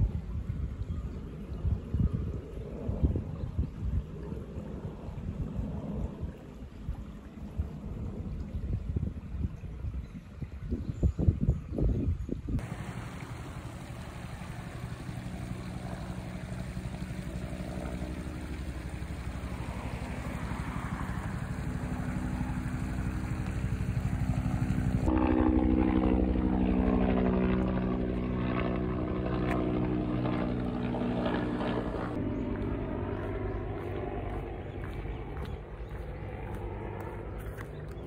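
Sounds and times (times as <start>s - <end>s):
motor droning: 12.6s - 38.0s.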